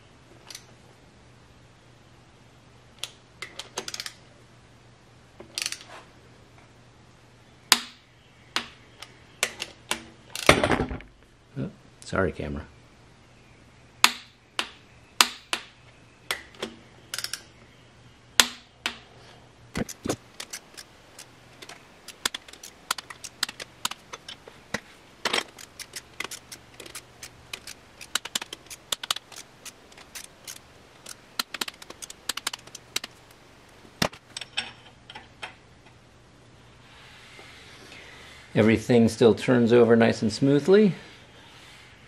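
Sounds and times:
faint steady hum: 0:00.0 - 0:42.0
metallic clicks of ratchet wrench: 0:05.6 - 0:05.8, 0:25.5 - 0:33.1.

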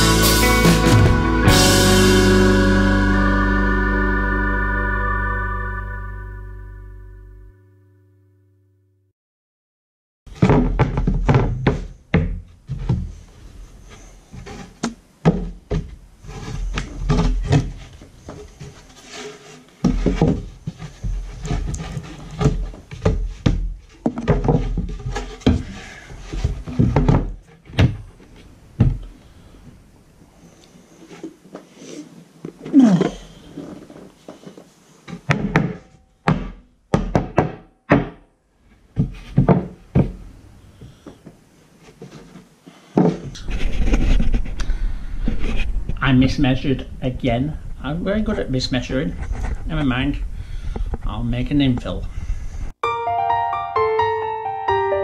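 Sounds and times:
wooden board thunks and knocks: 0:10.3 - 0:13.2, 0:14.4 - 0:16.0, 0:16.7 - 0:18.4, 0:19.8 - 0:28.1, 0:28.8 - 0:29.1, 0:35.2 - 0:38.2, 0:39.0 - 0:40.2, 0:43.0 - 0:43.3.

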